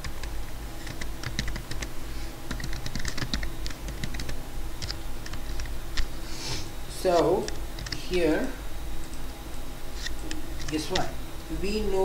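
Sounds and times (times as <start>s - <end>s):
typing on a computer keyboard: 0.8s - 1.9s, 2.5s - 5.4s, 7.8s - 8.0s.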